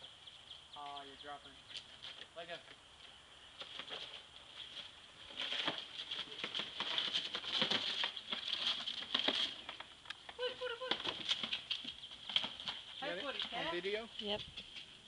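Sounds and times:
rope running over tree limb: 3.6 - 15.0.

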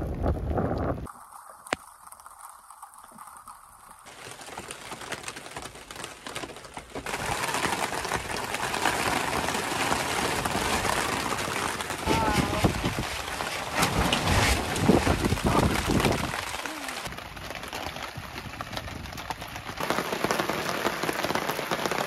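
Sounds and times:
heavy rain pattering on tarp: 0.0 - 22.0.

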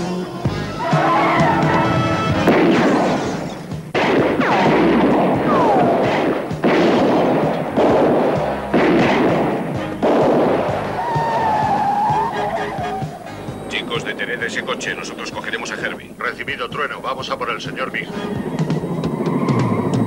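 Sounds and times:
soundtrack music: 0.0 - 20.0
falling squeals: 0.7 - 2.3, 11.0 - 15.1, 18.0 - 20.0.

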